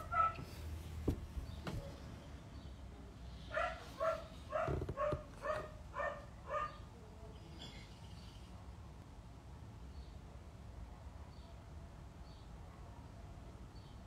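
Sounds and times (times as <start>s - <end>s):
dog barking: 0.0s - 0.5s, 3.5s - 6.8s.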